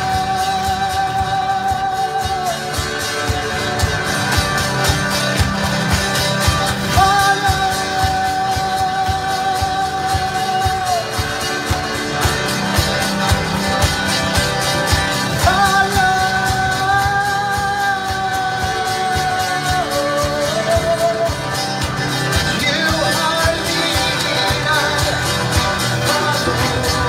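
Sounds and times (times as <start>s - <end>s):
man singing: 0.0s - 3.5s, 6.7s - 11.8s, 15.2s - 27.0s
acoustic guitar strumming: 0.0s - 27.0s.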